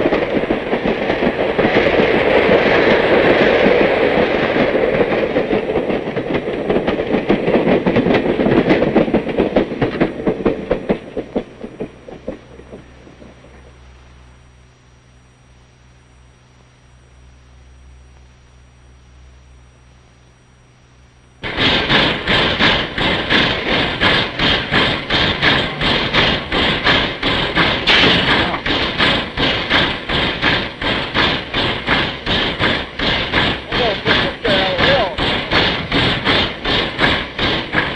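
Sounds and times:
steam locomotive panting: 0.0 - 13.8, 21.4 - 37.9
train wheels clicking over rail joints: 0.0 - 13.9, 21.4 - 37.9
train rumble: 0.0 - 37.9.

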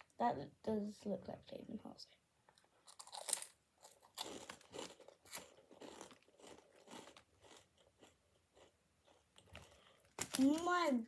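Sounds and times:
loud crunch of bite: 2.8 - 10.3
crunchy snack chewing: 2.8 - 10.4.

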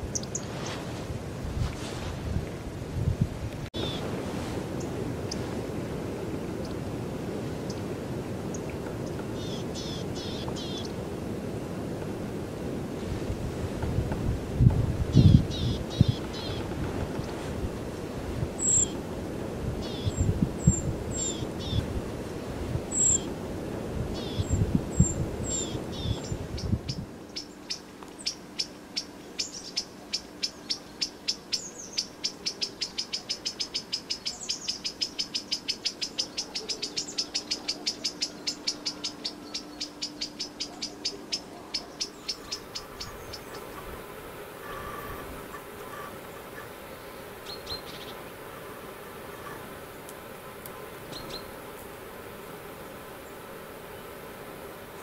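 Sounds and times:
wind gusting over microphone: 0.0 - 27.3.

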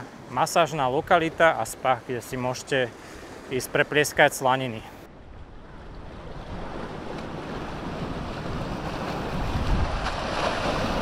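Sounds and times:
sea waves washing: 0.0 - 11.0
wind buffeting microphone: 5.1 - 11.0.

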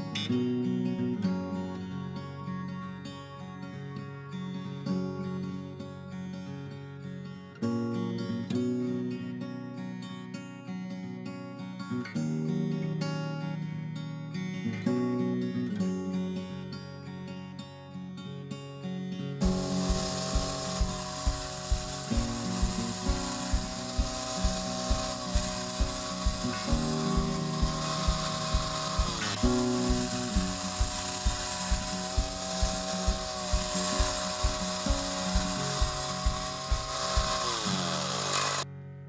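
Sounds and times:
background music with beat: 19.4 - 38.6
bandsaw mill cutting log: 19.4 - 38.7.

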